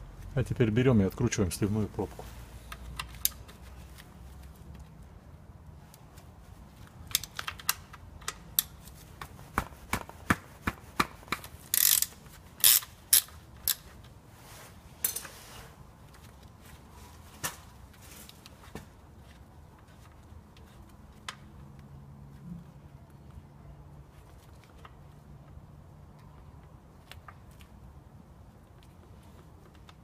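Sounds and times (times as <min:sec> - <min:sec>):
wrench clicking: 0:11.7 - 0:13.8
wrench scraping: 0:11.7 - 0:13.8.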